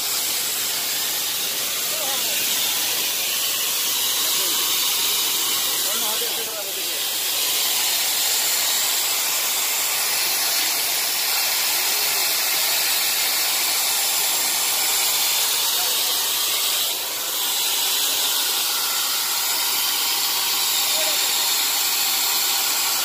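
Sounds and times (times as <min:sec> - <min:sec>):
high-pitched hiss: 0:00.0 - 0:23.0.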